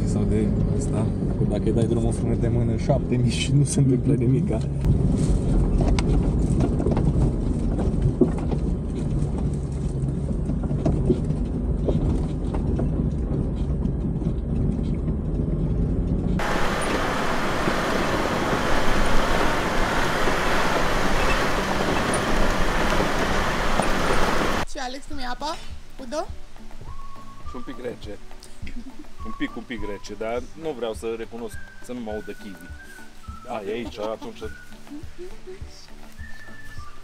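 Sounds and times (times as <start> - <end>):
vehicle engine and road rumble: 0.0 - 37.0
wind: 0.0 - 37.0
knocks and rattles from bumps: 5.4 - 16.4
tyres rushing on gravel: 16.4 - 24.6.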